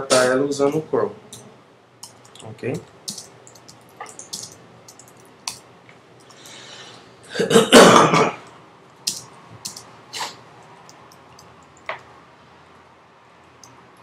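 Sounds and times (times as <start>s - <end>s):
keyboard keystrokes clicking: 2.0s - 5.6s, 9.1s - 9.9s
man clearing throat: 7.3s - 8.4s.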